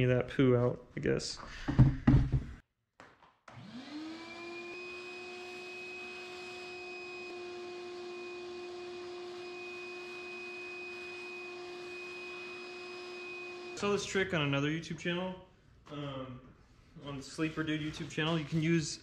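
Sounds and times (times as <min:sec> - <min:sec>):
vacuum cleaner running: 0:03.5 - 0:14.1.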